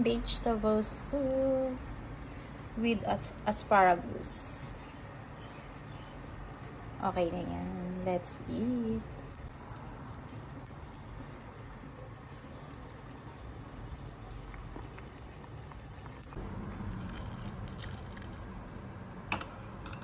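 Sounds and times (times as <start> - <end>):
low steady hum: 0.0 - 20.0
soup bubbling in pot: 0.0 - 20.0.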